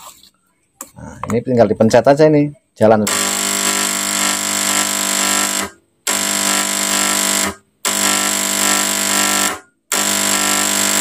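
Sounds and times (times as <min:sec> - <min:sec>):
fog machine pump buzzing: 0:03.1 - 0:11.0.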